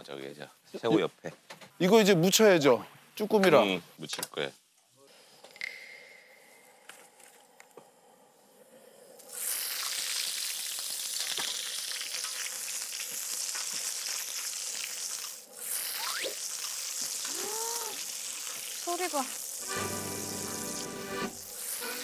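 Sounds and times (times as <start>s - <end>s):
meat sizzling in hot fat: 9.3s - 22.0s.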